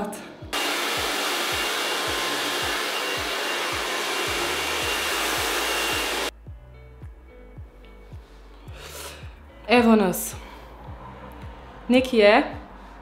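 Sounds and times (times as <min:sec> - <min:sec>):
background music with low beat: 0:00.3 - 0:13.0
hair dryer running: 0:00.6 - 0:06.3.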